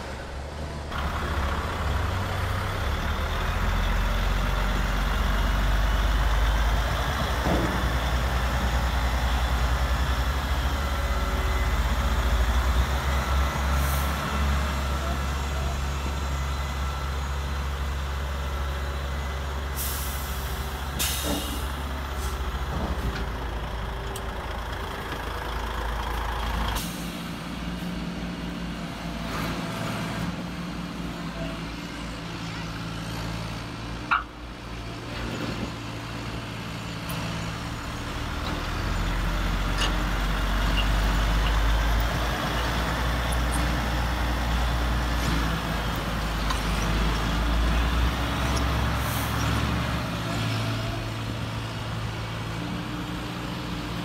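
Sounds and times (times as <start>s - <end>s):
simulated diesel engine rumble: 0.0s - 54.0s
air-brake hisses: 19.8s - 22.4s.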